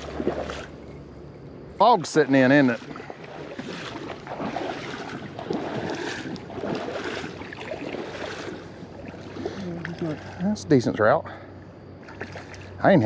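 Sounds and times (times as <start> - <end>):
fish splashing at surface: 0.0 - 0.8, 2.5 - 10.5, 12.0 - 12.8
river water running: 0.0 - 13.0.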